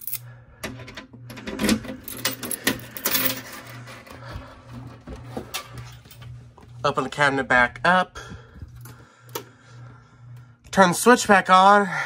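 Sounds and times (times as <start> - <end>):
keys jangling: 0.0 - 0.2
pulsing low hum: 0.0 - 12.0.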